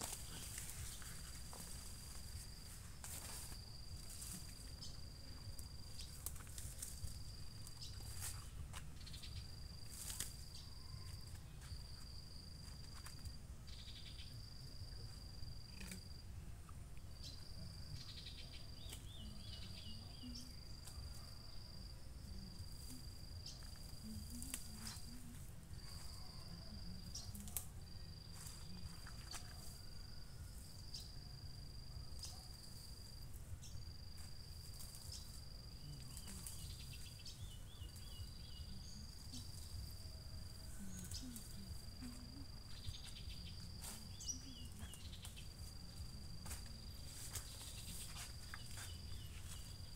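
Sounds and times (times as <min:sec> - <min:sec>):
weeds being pulled: 0:00.0 - 0:05.0
insect trilling: 0:00.0 - 0:11.9, 0:13.0 - 0:16.3, 0:17.1 - 0:49.9.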